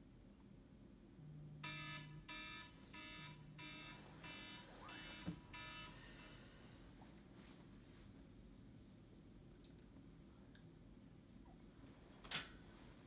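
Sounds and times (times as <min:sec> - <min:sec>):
alarm beeping: 0:01.6 - 0:06.8
bedding rustling: 0:06.3 - 0:09.2, 0:11.3 - 0:13.0.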